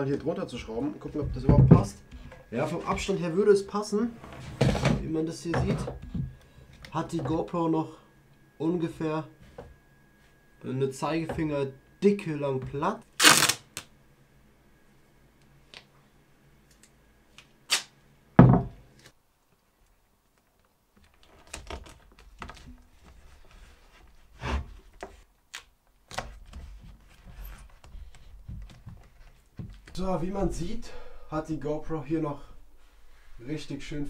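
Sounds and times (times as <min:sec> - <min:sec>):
hands rubbing tape: 0:13.2 - 0:13.9
tape ripped off roll: 0:13.2 - 0:13.9, 0:17.7 - 0:17.9
knocks on wooden workbench: 0:18.4 - 0:18.8.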